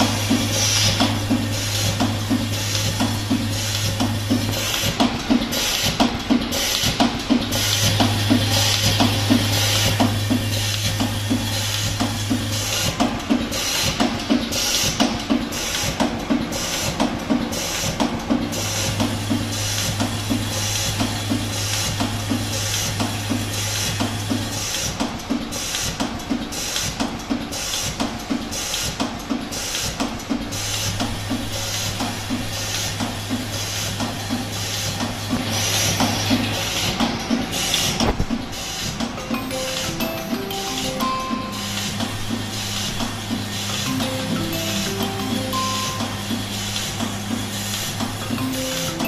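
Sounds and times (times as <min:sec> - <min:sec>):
low machine hum: 0:00.0 - 0:24.8.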